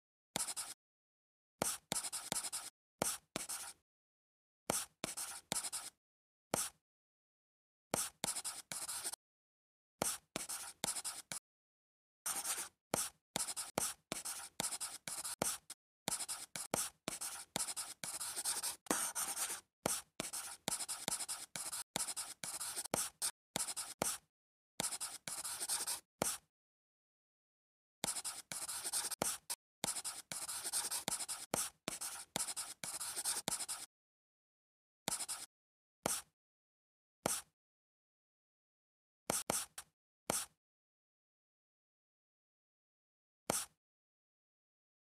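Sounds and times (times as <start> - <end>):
scratchy drawing strokes: 0.4 - 0.8, 1.6 - 3.8, 8.0 - 9.2, 12.3 - 24.2, 24.8 - 26.5, 28.0 - 33.9, 35.1 - 35.5, 43.5 - 43.8.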